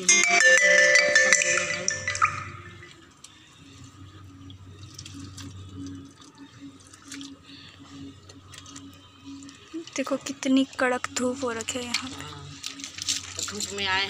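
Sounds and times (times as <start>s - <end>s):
musical tone: 0.0s - 3.0s.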